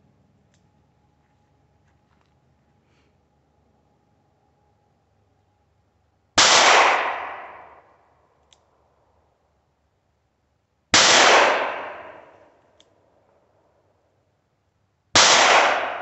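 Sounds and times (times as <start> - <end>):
revolver gunshots: 6.4 - 7.8, 11.0 - 12.3, 15.2 - 16.0.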